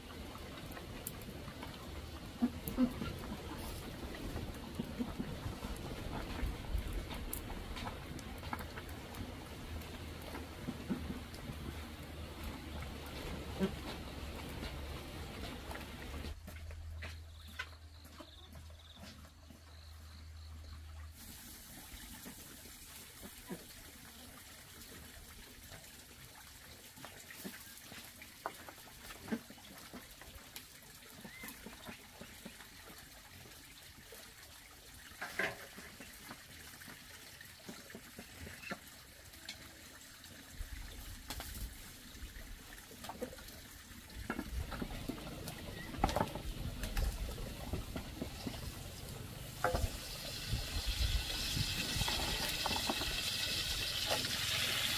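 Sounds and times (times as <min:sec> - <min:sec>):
open fire hissing: 0:21.1 - 0:23.5, 0:48.3 - 0:54.9.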